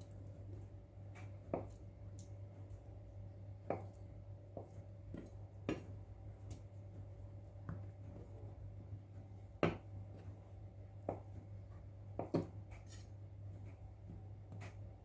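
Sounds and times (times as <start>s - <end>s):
steady low hum: 0.0s - 15.0s
knife knocking on cutting board: 9.6s - 9.8s, 12.2s - 12.6s.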